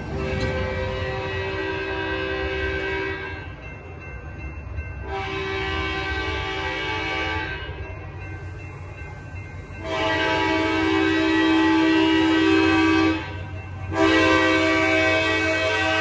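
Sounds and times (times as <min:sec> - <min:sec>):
low train rumble: 0:00.0 - 0:16.0
train horn blasts: 0:00.1 - 0:03.4, 0:05.0 - 0:07.8, 0:09.8 - 0:16.0.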